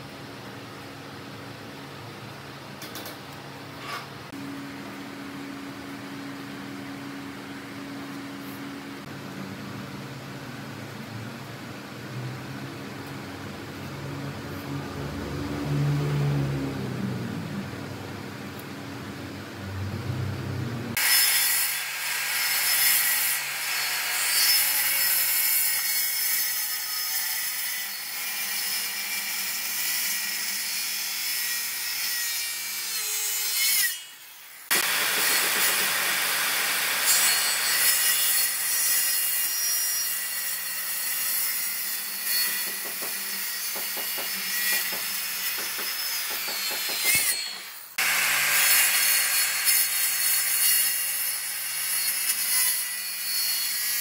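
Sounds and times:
circular saw cutting wood: 20.9s - 54.0s.

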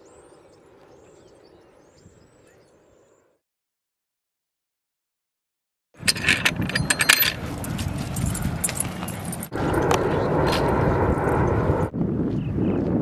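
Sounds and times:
metal collar tags jingling: 6.0s - 9.6s
wind noise on microphone: 6.0s - 13.0s.

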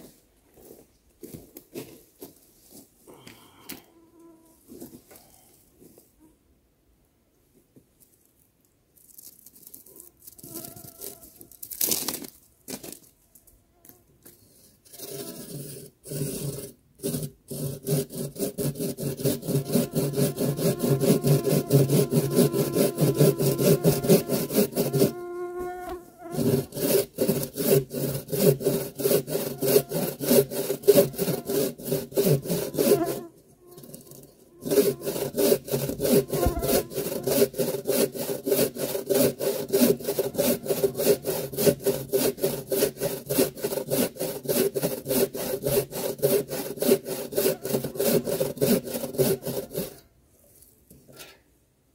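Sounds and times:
pull saw cutting log: 14.8s - 50.0s.

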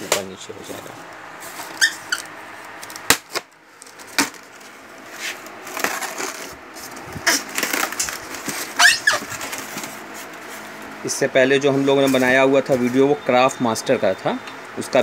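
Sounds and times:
rustling and scraping: 0.0s - 3.1s, 3.7s - 10.9s
foam squeaking against foam: 1.7s - 2.3s, 7.2s - 9.6s
polystyrene cracking: 5.4s - 10.1s.

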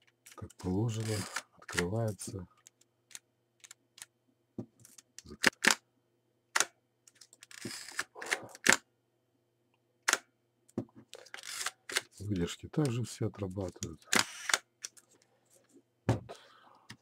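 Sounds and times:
camera shutter clicks and clacks: 1.0s - 1.9s, 5.4s - 5.8s, 14.1s - 14.7s.

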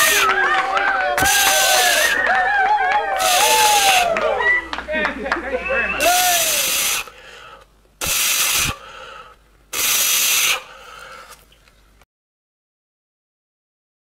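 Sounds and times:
loud hissing rushes: 6.0s - 7.2s, 8.0s - 9.0s, 9.7s - 10.8s.

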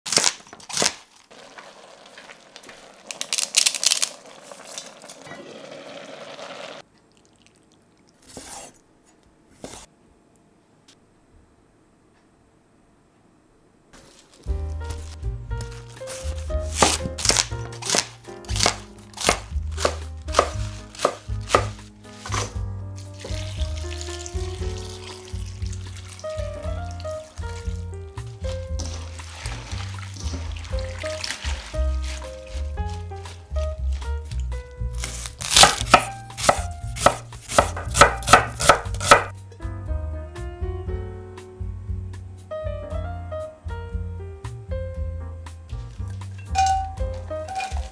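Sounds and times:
water pouring into steel bowl: 1.3s - 7.9s, 23.0s - 27.8s, 28.5s - 33.3s, 46.6s - 47.9s
knife slicing cabbage on board: 8.2s - 8.8s, 9.6s - 9.9s, 14.9s - 22.6s, 32.0s - 34.0s, 34.9s - 39.3s
soft piano music: 14.4s - 47.9s.

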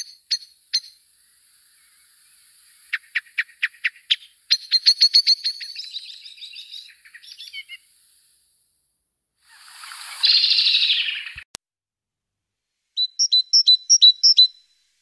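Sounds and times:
songbirds singing: 0.0s - 8.5s, 9.5s - 11.4s, 13.0s - 14.7s.

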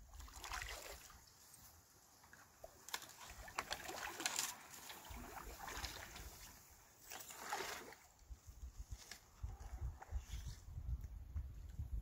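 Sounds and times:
paddle strokes splashing water: 0.0s - 8.3s
shrubs and reeds rustling: 0.9s - 10.8s.

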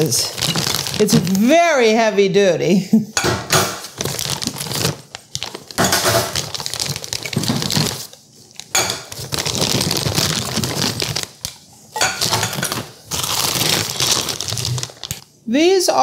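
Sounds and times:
plastic bags crinkling: 0.0s - 1.7s, 3.8s - 15.3s.

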